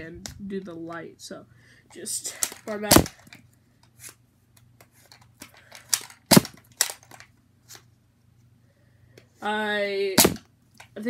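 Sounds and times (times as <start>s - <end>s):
toy dart pistol shot: 2.4s - 3.3s, 5.9s - 7.0s, 10.2s - 10.5s
toy pistol mechanism clicks: 5.4s - 7.3s.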